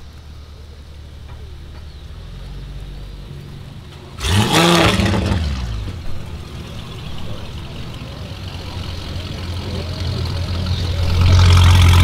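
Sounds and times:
vehicle engine idling: 0.0 - 12.0
faint voices: 6.2 - 12.0.

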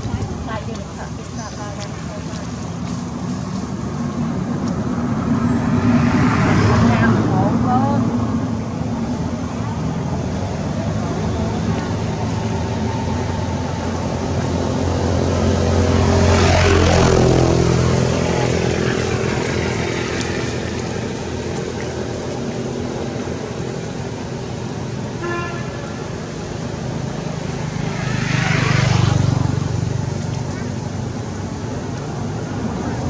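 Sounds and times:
vehicle engines passing: 0.0 - 33.0
short horn toot: 25.2 - 26.0.

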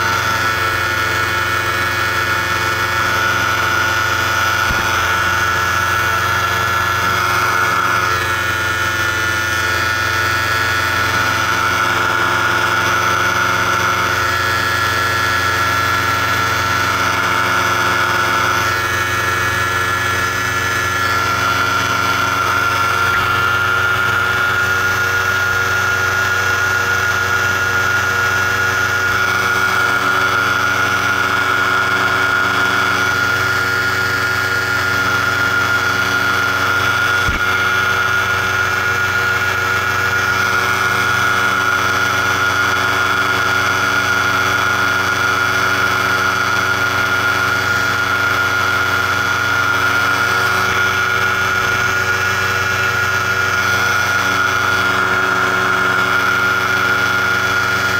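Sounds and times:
paramotor engine running: 0.0 - 57.9.

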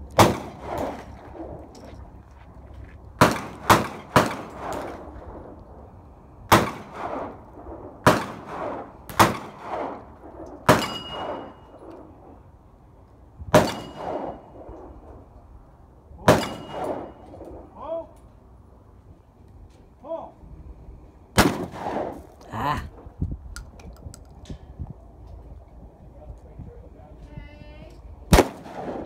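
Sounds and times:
shotgun shots echoing: 0.2 - 1.1, 3.2 - 5.0, 6.5 - 7.4, 8.0 - 10.0, 10.6 - 11.6, 13.5 - 14.5, 16.2 - 17.3, 21.4 - 22.2, 28.3 - 29.0.

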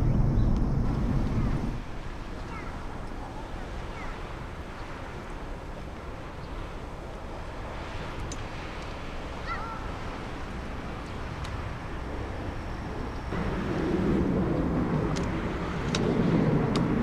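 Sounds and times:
distant jet engines spooling up: 0.0 - 3.6, 10.4 - 17.0.

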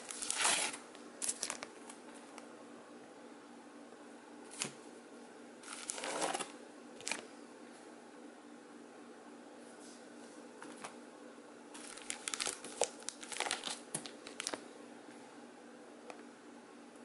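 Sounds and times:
plastic bags crinkling: 0.0 - 2.0, 5.6 - 7.3, 11.8 - 14.6
faint steady hum: 0.0 - 17.0.

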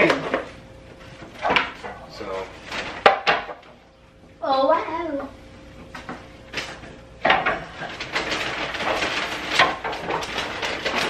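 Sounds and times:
containers rustling and clattering: 0.0 - 3.8, 5.9 - 11.0.

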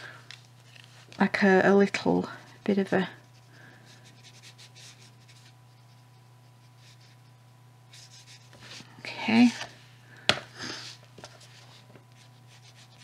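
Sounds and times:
brush bristles scratching paper: 2.8 - 8.8, 11.4 - 13.0.

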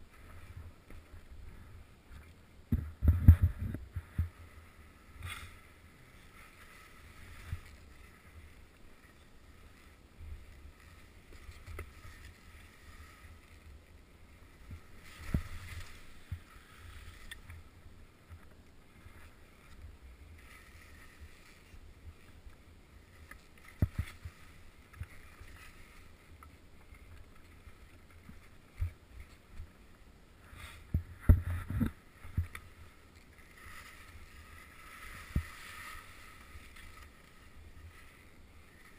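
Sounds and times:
wind rumble on microphone: 0.0 - 5.3, 28.2 - 32.9
skis thumping on bumps: 2.6 - 4.5
skis swishing through powder snow: 3.0 - 17.9, 18.8 - 38.9.

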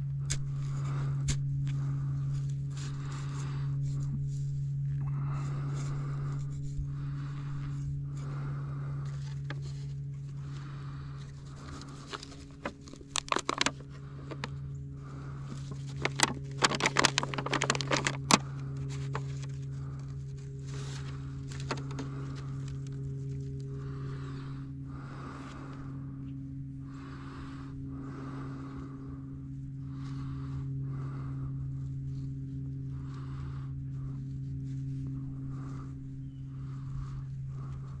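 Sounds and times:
steady low hum: 0.0 - 38.0
handling clicks and scrapes: 11.2 - 14.6, 15.4 - 23.7.

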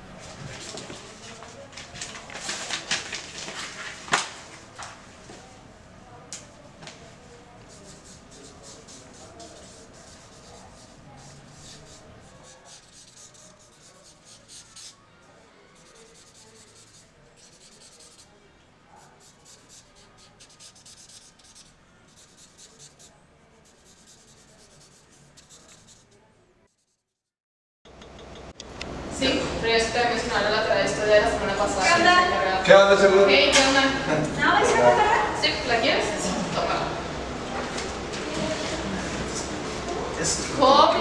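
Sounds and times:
pen scratching on paper: 7.7 - 15.0, 15.8 - 18.3, 19.1 - 26.2.

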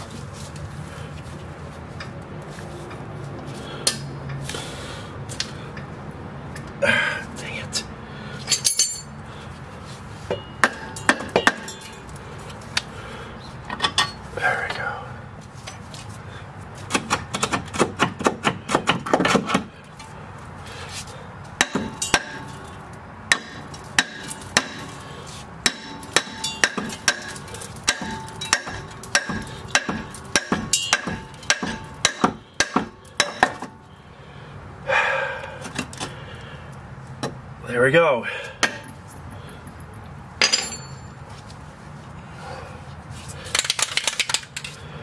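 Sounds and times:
hammer striking steel: 10.3 - 12.1, 21.6 - 22.6, 23.3 - 25.0, 25.6 - 33.9, 38.6 - 39.0, 40.4 - 41.2.

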